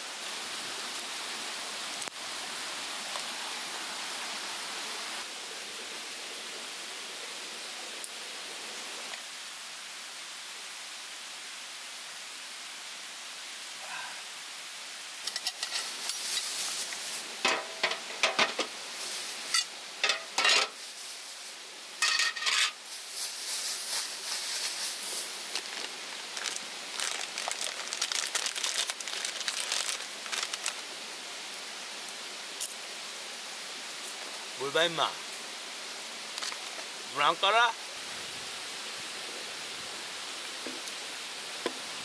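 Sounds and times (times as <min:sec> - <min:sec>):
steady hiss: 0:00.0 - 0:42.0
plastic bags crinkling: 0:22.3 - 0:30.8.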